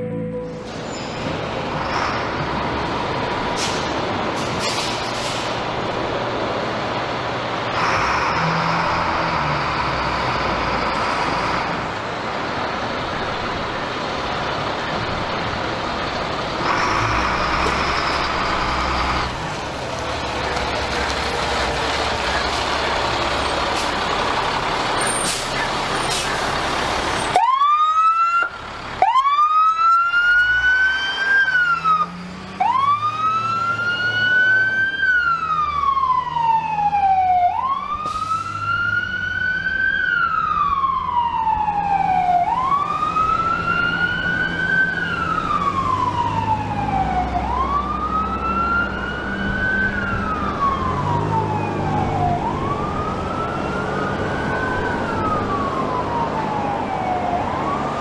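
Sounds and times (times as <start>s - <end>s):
siren wailing: 0.0s - 1.0s, 27.3s - 58.0s
truck and road noise: 0.0s - 58.0s.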